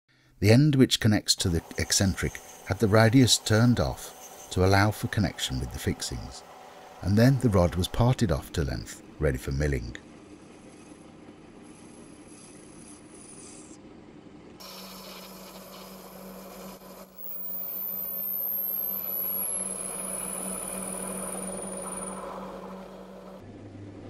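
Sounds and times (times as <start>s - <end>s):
cutting tool scraping metal: 1.4s - 7.8s, 14.6s - 23.1s
lathe humming: 1.4s - 8.6s, 14.6s - 23.4s.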